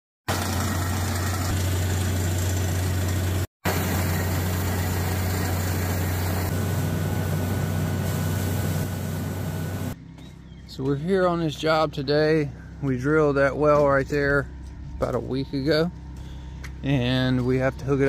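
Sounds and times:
drilling rig engine drone: 0:00.3 - 0:10.0, 0:11.3 - 0:18.0
water rushing from borehole: 0:00.3 - 0:10.0.

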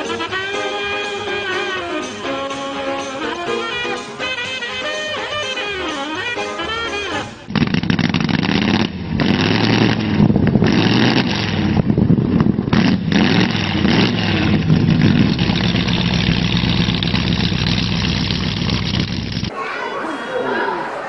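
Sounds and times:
engine revving hard: 0:07.5 - 0:11.9, 0:12.7 - 0:19.5.

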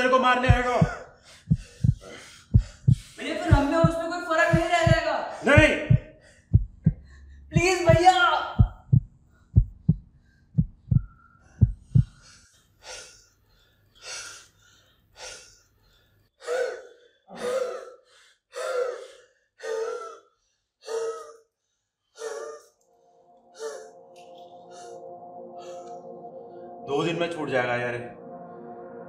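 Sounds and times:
heartbeat thumps: 0:00.4 - 0:12.3
person gasping heavily: 0:00.7 - 0:03.9, 0:16.4 - 0:21.5, 0:22.2 - 0:22.8
low drone: 0:22.2 - 0:29.0
music: 0:22.6 - 0:29.0.

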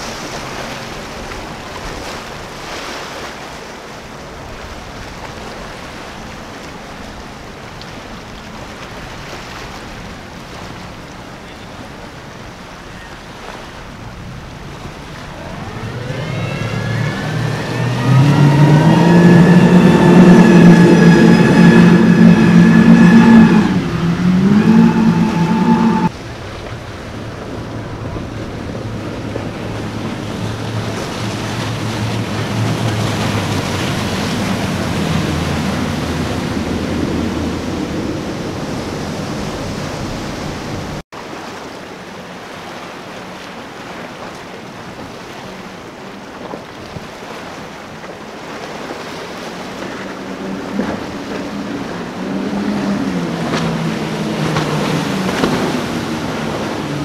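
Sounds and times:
outboard engines droning: 0:00.0 - 0:57.0
rushing water: 0:00.0 - 0:57.0
wind on microphone: 0:13.8 - 0:41.0.

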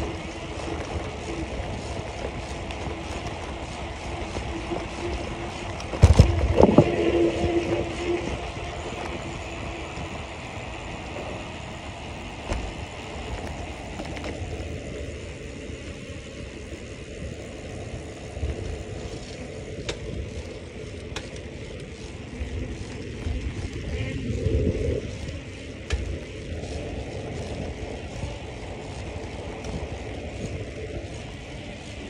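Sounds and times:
wind rushing: 0:00.0 - 0:11.9
bicycle tyres rolling on paving: 0:00.0 - 0:32.0.

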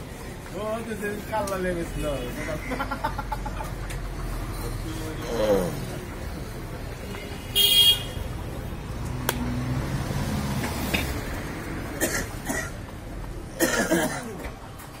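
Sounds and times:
street traffic: 0:00.0 - 0:15.0.

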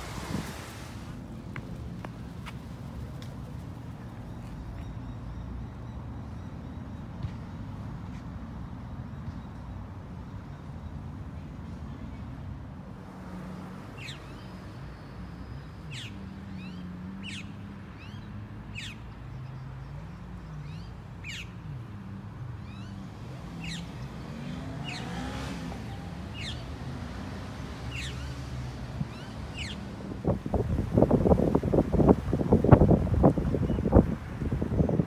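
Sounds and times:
bird chirping: 0:23.6 - 0:26.7, 0:27.8 - 0:28.5.

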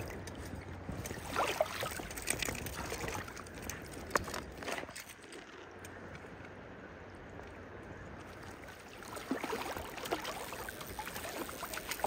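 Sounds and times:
sharp splashes and knocks: 0:00.0 - 0:05.6, 0:08.5 - 0:12.0
river water trickling and splashing: 0:00.0 - 0:12.0.

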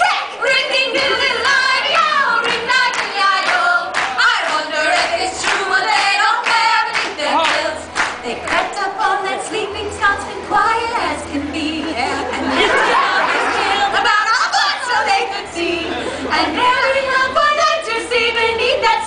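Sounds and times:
women singing in harmony: 0:00.0 - 0:19.0
hand claps: 0:02.4 - 0:08.6.

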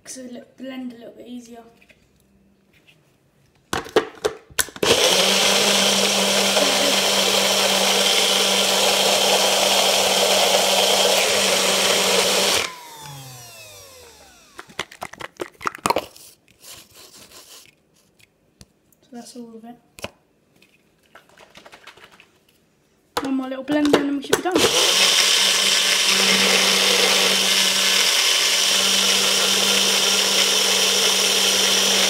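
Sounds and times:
blender motor running: 0:04.8 - 0:15.2, 0:24.6 - 0:32.0.

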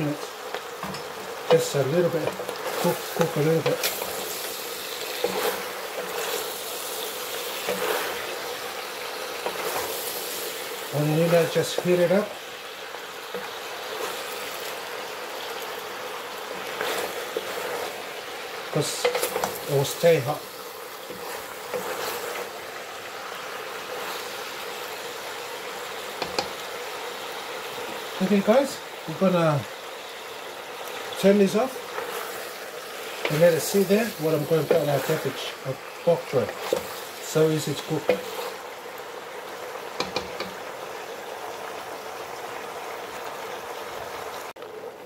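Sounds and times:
stir-fry sizzling in a pot: 0:00.0 - 0:45.0
wooden spoon knocking on pot: 0:26.2 - 0:26.6, 0:40.0 - 0:40.6.

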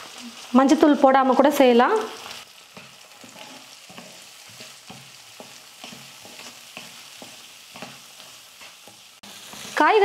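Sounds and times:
vegetables sizzling in oil: 0:00.0 - 0:10.0
wooden spatula scraping pan: 0:02.7 - 0:09.8.

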